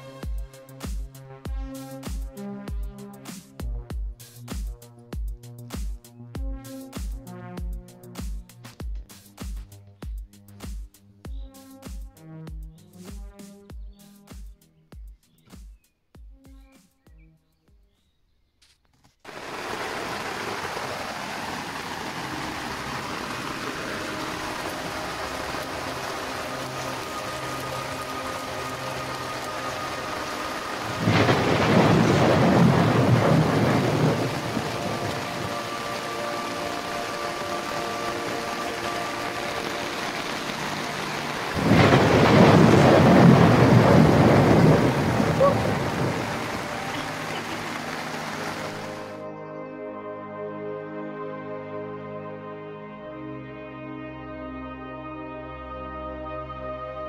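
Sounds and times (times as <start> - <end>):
heavy rain: 19.3 - 49.2.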